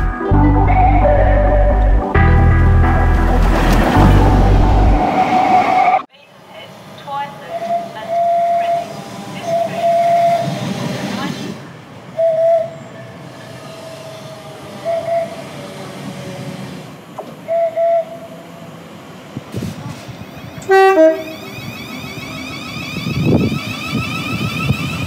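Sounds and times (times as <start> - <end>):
train running noise: 2.3 - 25.0
two-tone train horn blast: 20.6 - 21.5
short train horn toots: 20.7 - 21.4.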